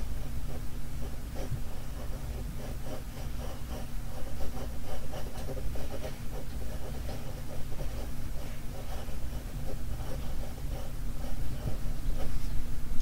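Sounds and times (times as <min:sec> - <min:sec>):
pencil scratching on paper: 0:00.0 - 0:12.6
steady low hum: 0:00.0 - 0:13.0.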